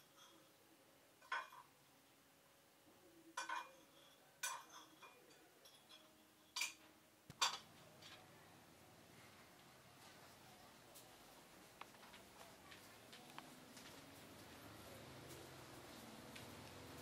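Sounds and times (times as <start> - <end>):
dishes and cutlery clinking: 0.0 - 0.6, 1.2 - 1.8, 3.3 - 8.3.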